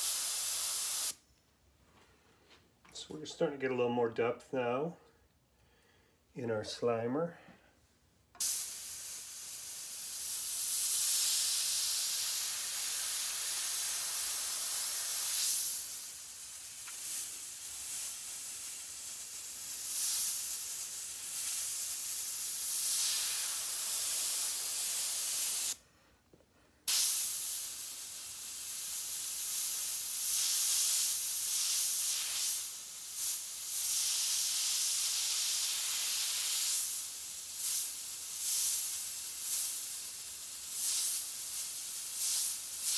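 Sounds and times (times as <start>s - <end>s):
airbrush hissing: 0.0s - 1.2s, 8.4s - 25.8s, 26.9s - 42.9s.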